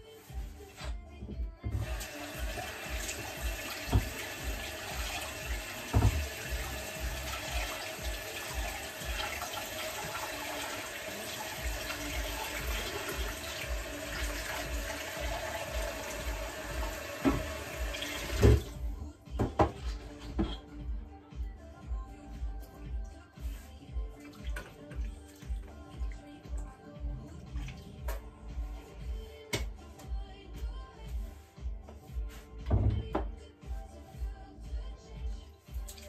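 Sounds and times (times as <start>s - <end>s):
tap running into sink: 1.6s - 18.8s.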